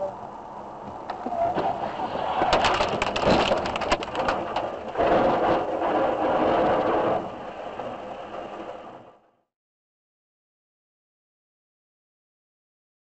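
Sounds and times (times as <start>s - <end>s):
loud steady noise: 0.0s - 9.4s
vehicles crashing: 0.8s - 9.3s
debris crunching: 1.6s - 7.3s.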